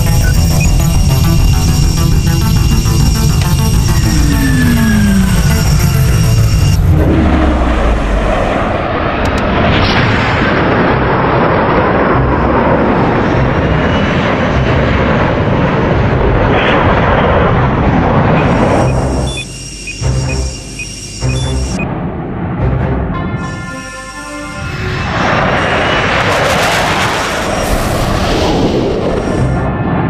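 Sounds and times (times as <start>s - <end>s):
jet engine roar: 0.0s - 30.0s
jet whooshes: 24.6s - 29.8s.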